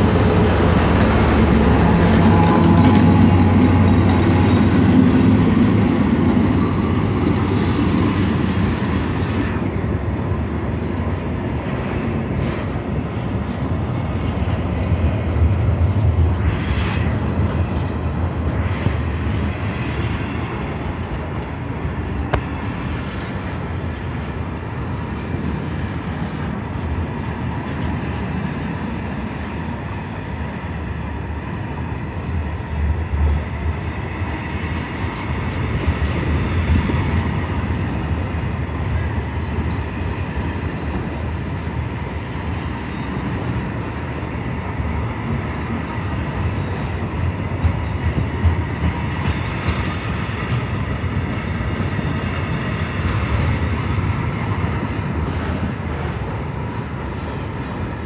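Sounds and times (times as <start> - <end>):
train wheels clacking: 0.0 - 9.9, 35.6 - 56.3
locomotive engines running: 0.0 - 11.7.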